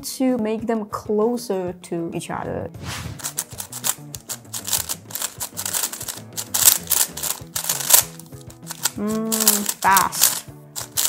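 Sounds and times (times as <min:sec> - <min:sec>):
puzzle cube clicking: 0:03.1 - 0:11.0.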